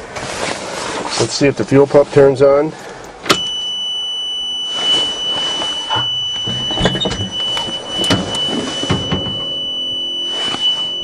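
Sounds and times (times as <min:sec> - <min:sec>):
fuel pump high-pitched whine: 0:03.0 - 0:11.0
short rustling: 0:04.6 - 0:11.0.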